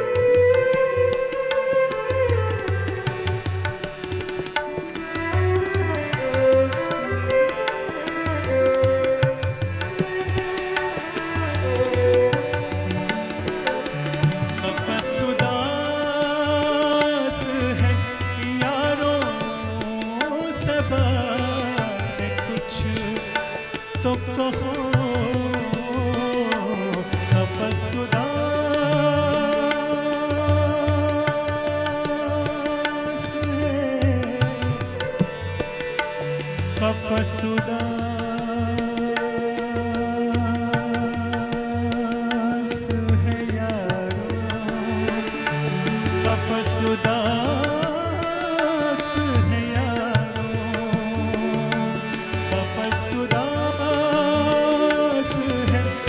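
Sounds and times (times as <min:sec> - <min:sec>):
harmonium: 0:00.0 - 0:56.0
tabla rhythm: 0:00.0 - 0:56.0
man singing long held notes: 0:11.0 - 0:35.6, 0:36.6 - 0:56.0.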